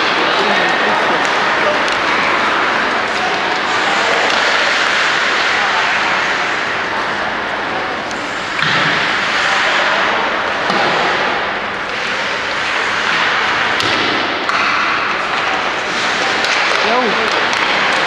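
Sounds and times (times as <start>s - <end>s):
skates scraping on ice: 0.4s - 13.9s.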